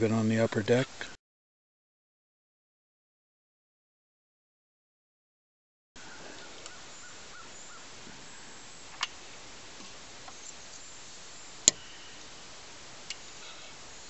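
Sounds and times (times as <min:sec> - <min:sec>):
steady hiss: 0:00.0 - 0:01.2, 0:06.0 - 0:14.0.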